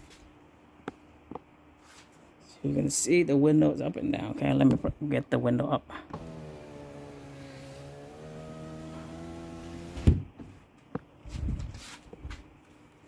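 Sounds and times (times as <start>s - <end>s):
power window motor whine: 6.2s - 10.2s
window glass thump: 9.9s - 10.3s.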